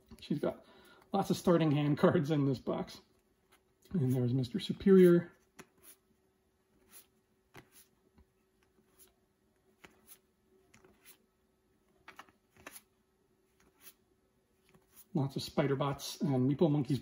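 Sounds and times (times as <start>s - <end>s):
cards being shuffled in hand: 3.4s - 6.1s, 6.7s - 15.5s.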